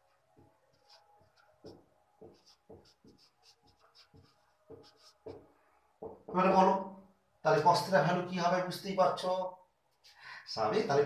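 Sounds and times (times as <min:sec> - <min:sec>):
marker pen writing on whiteboard: 0:00.0 - 0:06.6.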